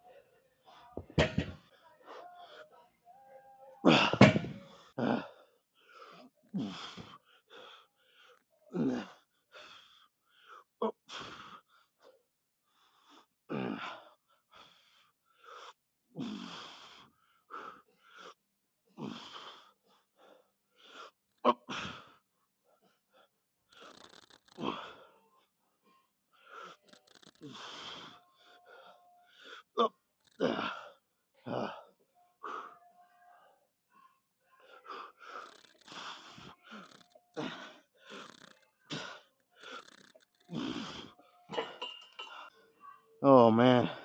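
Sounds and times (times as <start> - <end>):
man exhaling and grunting: 3.9 - 5.4, 8.8 - 9.1, 29.8 - 31.8, 36.8 - 41.1.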